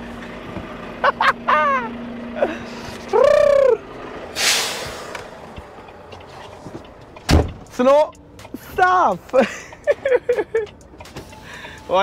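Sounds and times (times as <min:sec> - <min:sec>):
man's drawn-out vocal call: 0:03.1 - 0:03.8.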